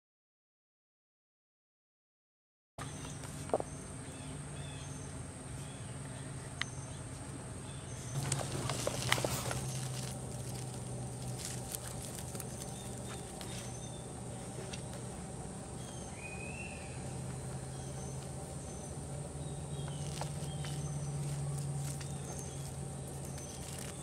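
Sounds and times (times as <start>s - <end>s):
bird chirps: 2.8s - 24.0s
high-pitched hum: 2.8s - 24.0s
rabbits nibbling leaves: 2.8s - 24.0s
leaves rustling: 7.9s - 24.0s.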